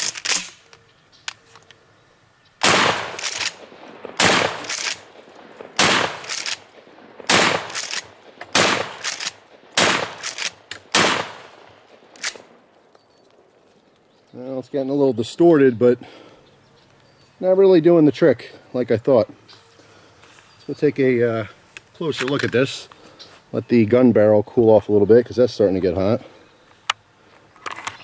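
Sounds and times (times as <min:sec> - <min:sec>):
shotgun pump clacks: 0:00.0 - 0:00.7, 0:02.7 - 0:03.6, 0:04.2 - 0:05.0, 0:05.8 - 0:06.6, 0:07.3 - 0:11.4
shotgun shots: 0:02.6 - 0:12.7.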